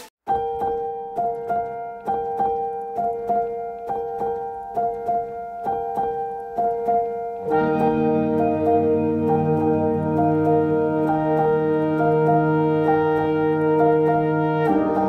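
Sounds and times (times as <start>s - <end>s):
piano repeating short figure: 0.0s - 15.0s
low sustained notes: 7.4s - 15.0s.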